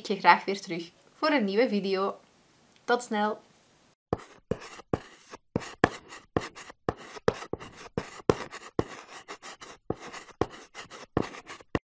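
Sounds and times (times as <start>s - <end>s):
chalk scratching on blackboard: 4.1s - 11.8s.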